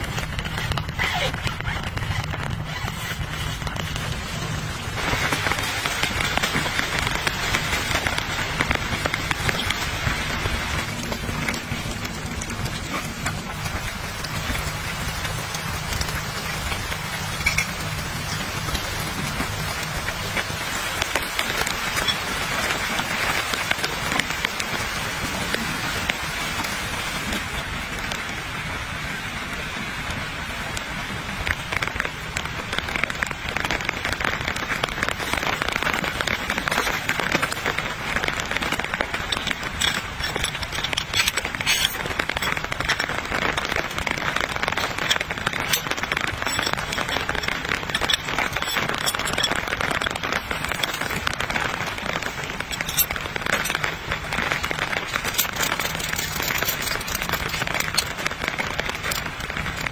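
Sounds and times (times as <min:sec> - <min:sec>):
steady rain falling: 0:00.0 - 0:59.9.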